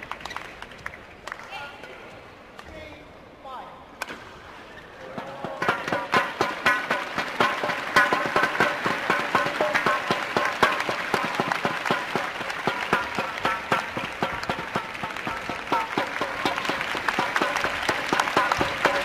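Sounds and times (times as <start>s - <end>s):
crowd clapping: 0.0s - 1.6s, 5.6s - 19.0s
crowd cheering: 5.1s - 19.0s.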